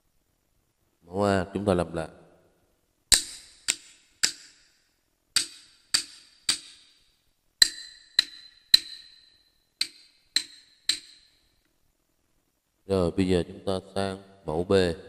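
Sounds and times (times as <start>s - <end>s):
wooden clappers tapping: 3.1s - 4.6s, 5.4s - 7.0s, 7.6s - 11.4s.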